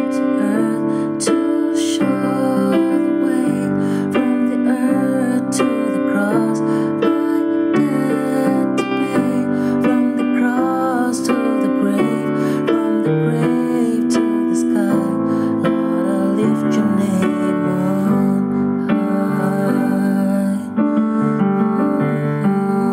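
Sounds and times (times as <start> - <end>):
electronic keyboard piano chords: 0.0 - 22.9.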